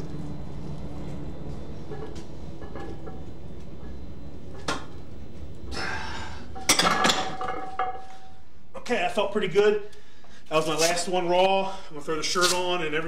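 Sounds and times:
barbell plates clanking: 0:06.4 - 0:08.4.

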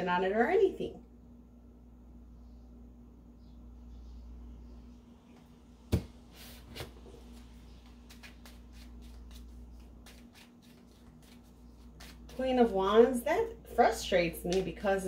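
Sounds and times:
cards shuffling and clicking: 0:07.8 - 0:12.4.

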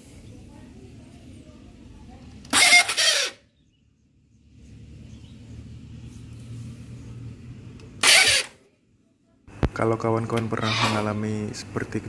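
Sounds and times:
motorcycle engine rumbling: 0:03.6 - 0:08.6
loud engine bursts: 0:08.0 - 0:08.6.

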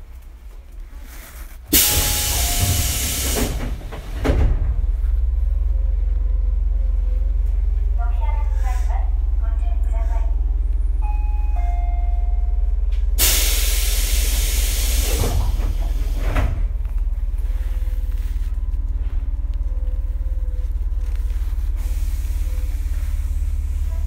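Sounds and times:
electric train hum: 0:00.0 - 0:24.0
compressed air hiss: 0:01.7 - 0:03.7, 0:13.2 - 0:16.2.

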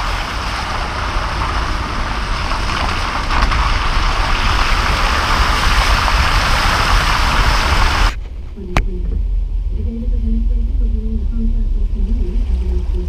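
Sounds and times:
car tyres splashing through water: 0:00.0 - 0:08.2
low rumble: 0:00.0 - 0:13.0.

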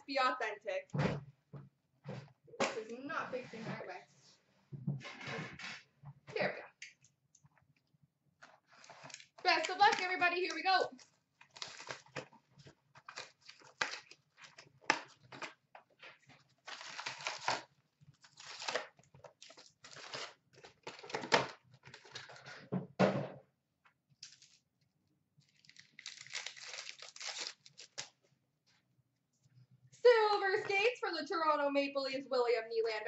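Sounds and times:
cardboard and wrappers tearing: 0:08.6 - 0:15.6, 0:16.4 - 0:22.6, 0:24.2 - 0:24.6, 0:25.4 - 0:28.2.

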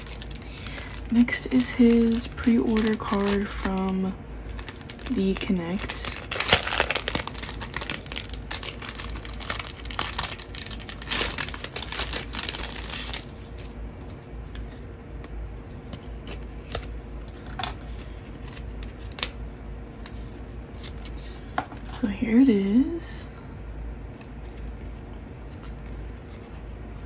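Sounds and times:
plastic wrapping crinkling: 0:00.0 - 0:14.7.

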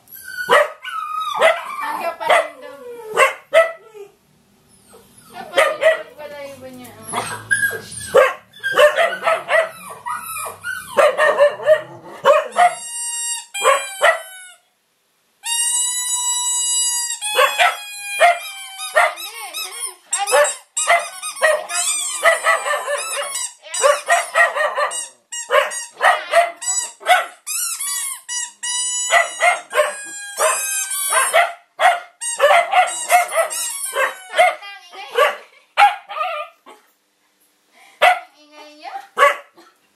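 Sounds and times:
high-pitched dog squeals: 0:00.0 - 0:03.2, 0:07.0 - 0:11.8, 0:12.4 - 0:14.6, 0:15.4 - 0:31.6, 0:32.2 - 0:34.6
dogs barking and yipping: 0:00.4 - 0:04.1, 0:04.8 - 0:06.2, 0:07.0 - 0:12.9, 0:13.6 - 0:14.4, 0:17.2 - 0:19.5, 0:20.2 - 0:27.4, 0:29.0 - 0:36.8, 0:39.0 - 0:39.6.

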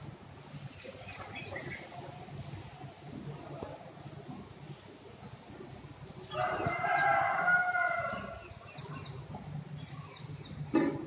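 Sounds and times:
rooster crowing: 0:06.3 - 0:08.4.

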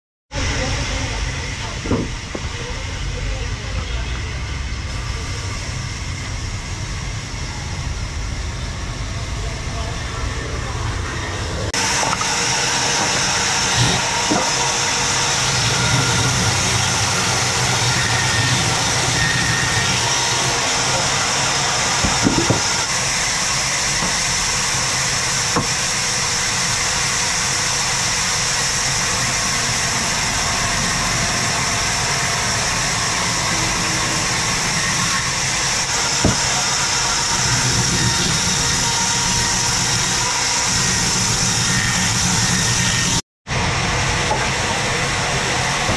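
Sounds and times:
band saw cutting log: 0:11.7 - 0:43.2.

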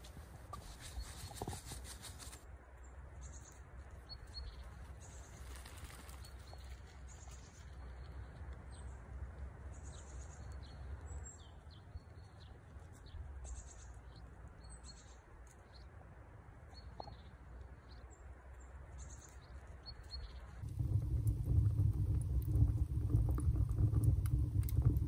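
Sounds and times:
small birds chirping: 0:00.4 - 0:09.0, 0:09.6 - 0:16.0, 0:16.6 - 0:20.7
faint low rumble: 0:02.4 - 0:25.0.

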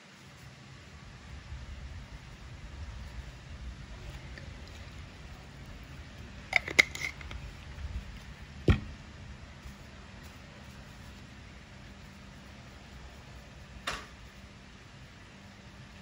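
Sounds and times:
pump dispenser plastic clicks: 0:06.6 - 0:07.4
dull knock: 0:08.7 - 0:09.0.

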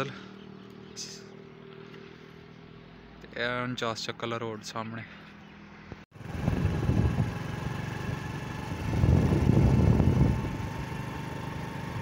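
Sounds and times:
wind buffeting microphone: 0:06.2 - 0:10.9.

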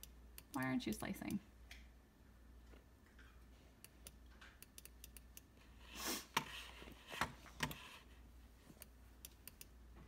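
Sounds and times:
computer mouse clicking: 0:00.0 - 0:01.1, 0:03.8 - 0:05.5, 0:08.8 - 0:09.8.

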